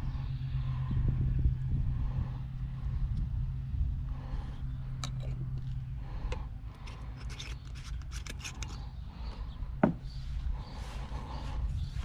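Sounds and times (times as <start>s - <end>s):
cap twisting onto metal can: 6.9s - 8.8s.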